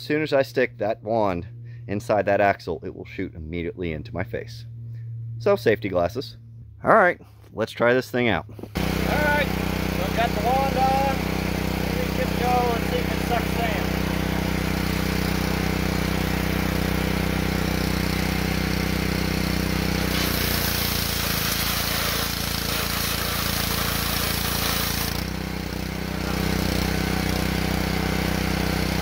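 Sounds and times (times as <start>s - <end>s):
pressure washer engine running: 8.6s - 29.0s
high-pressure spray hiss: 20.1s - 25.1s.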